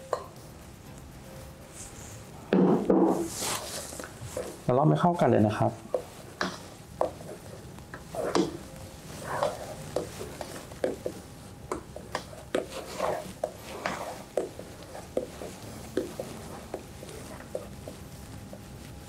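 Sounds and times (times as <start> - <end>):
spatula wet scraping batter: 6.1 - 18.0.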